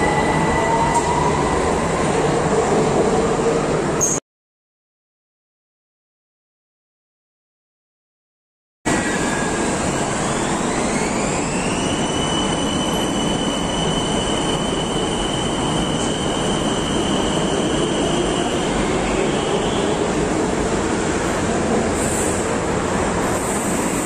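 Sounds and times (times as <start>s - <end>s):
wheels rumbling on rail: 8.9s - 24.0s.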